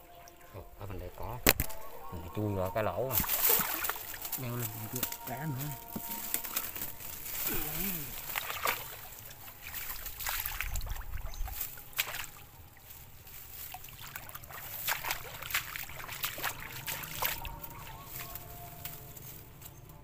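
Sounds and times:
sloshing through shallow water: 3.1s - 19.1s
sharp crackles and rustles: 3.1s - 20.0s
low rumble of water: 8.1s - 17.7s.

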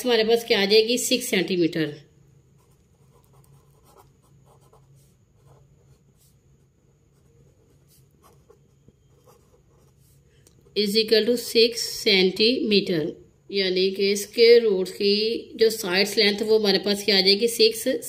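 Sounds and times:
pen scratching on paper: 2.6s - 10.8s.

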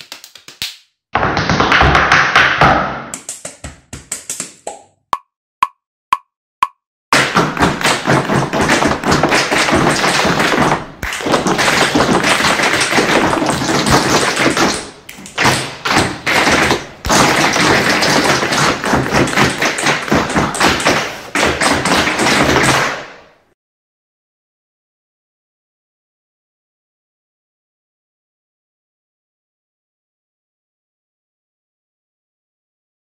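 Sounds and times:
tap shoes on hard floor: 1.2s - 4.8s, 7.2s - 23.2s.

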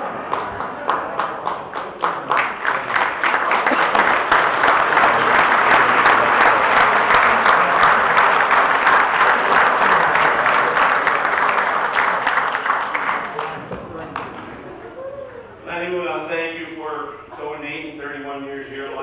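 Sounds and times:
crowd applauding: 0.0s - 14.7s.

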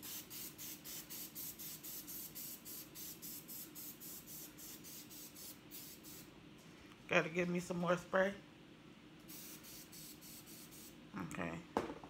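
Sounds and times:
oil sprayer hissing sprays: 0.0s - 6.3s, 9.3s - 11.0s.

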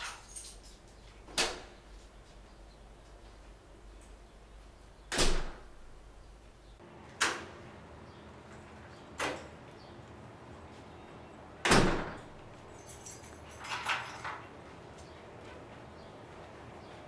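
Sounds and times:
door rattling and clicks: 0.0s - 2.1s, 5.1s - 5.9s, 11.6s - 14.6s
door shutting with thud: 1.3s - 1.8s, 5.1s - 5.8s, 11.6s - 12.4s
door latch click: 5.1s - 5.7s.

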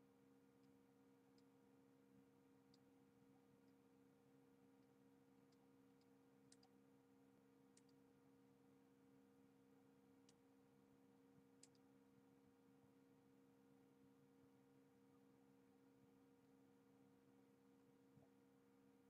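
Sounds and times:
faint electrical hum: 0.0s - 19.0s
faint short clicks: 11.6s - 11.8s.

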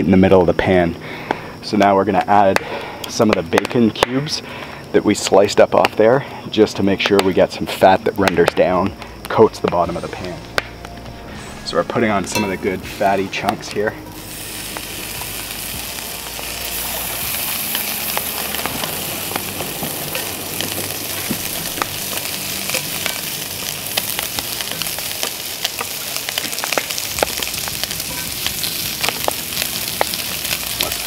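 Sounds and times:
fat popping and crackling: 1.1s - 6.1s, 7.0s - 31.0s
bacon sizzling in a skillet: 10.0s - 31.0s.

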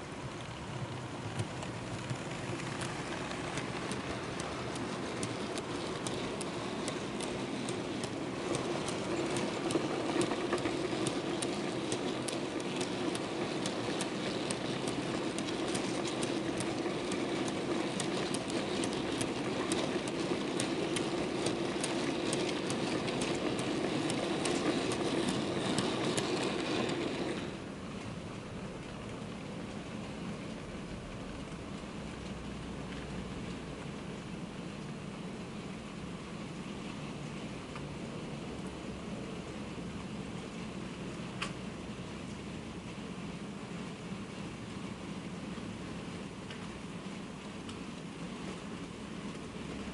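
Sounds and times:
wheels clicking over rail joints: 0.0s - 33.6s
model train running hum: 0.0s - 49.9s.

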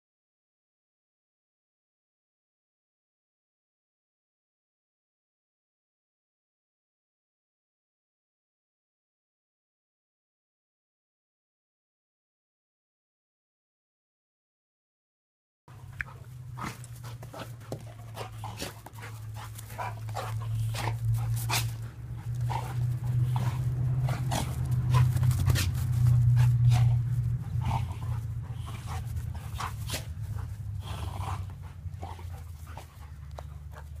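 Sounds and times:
dog play growl: 15.7s - 34.0s
dogs panting: 15.7s - 34.0s.

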